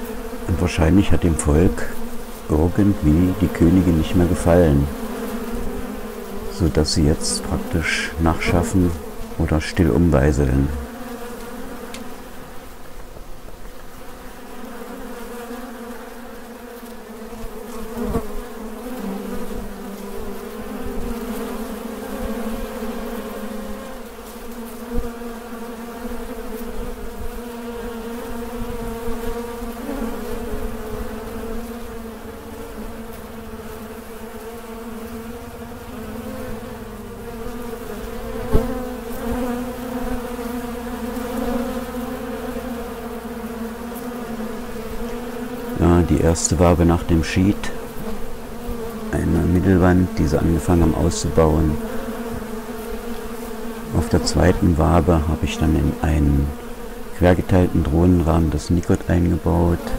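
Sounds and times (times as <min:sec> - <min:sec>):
bees buzzing: 0:00.0 - 0:59.9.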